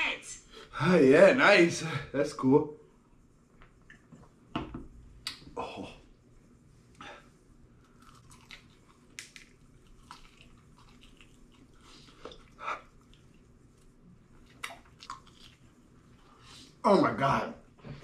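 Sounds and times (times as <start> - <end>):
chewing mouth clicks and smacks: 7.9 - 13.5, 14.4 - 15.7.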